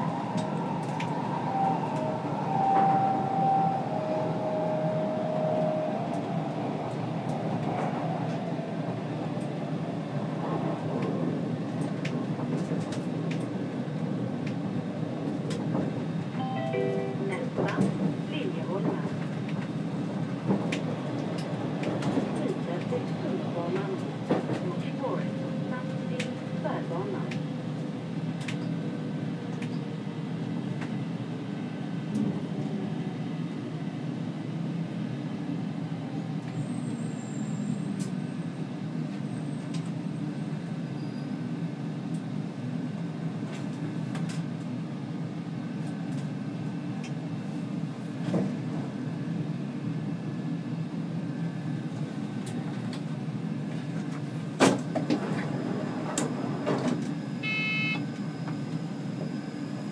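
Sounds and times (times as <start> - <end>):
metro train rumble: 0.0 - 59.9.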